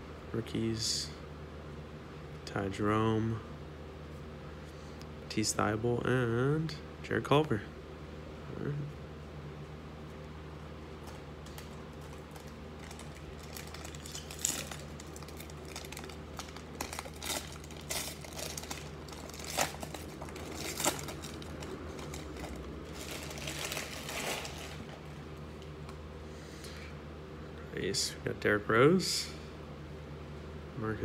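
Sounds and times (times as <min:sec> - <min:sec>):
card pack wrapper crinkling and tearing: 0:11.5 - 0:25.2.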